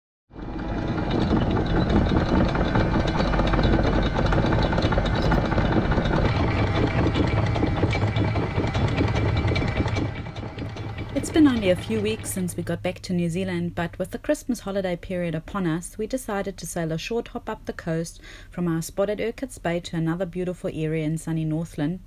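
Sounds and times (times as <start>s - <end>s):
anchor windlass running: 0.3s - 12.8s.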